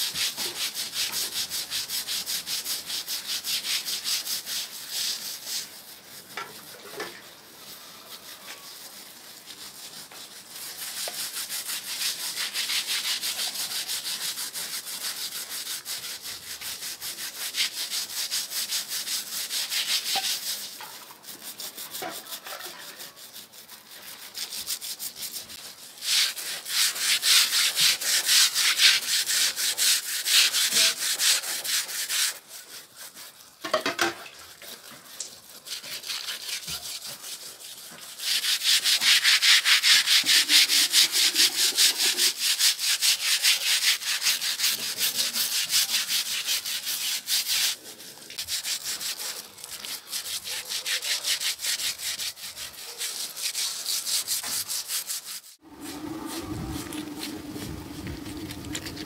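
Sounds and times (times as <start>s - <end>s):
fast rhythmic scraping strokes: 34.6s - 59.0s.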